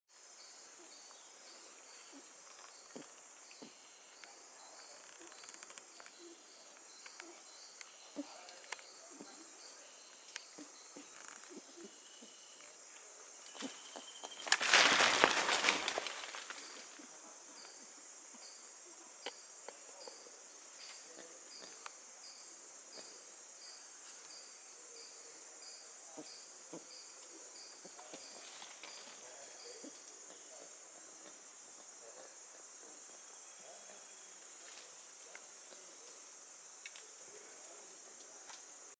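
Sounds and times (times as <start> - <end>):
insect chirping: 0.1 - 38.9
insects droning at high pitch: 0.1 - 38.9
loud rustling: 14.4 - 16.7.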